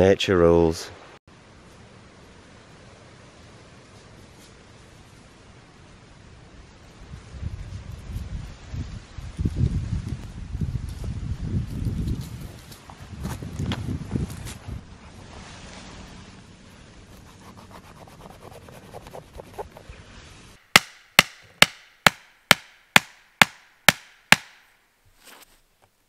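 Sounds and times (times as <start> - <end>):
wooden stake knocks: 20.8 - 24.6.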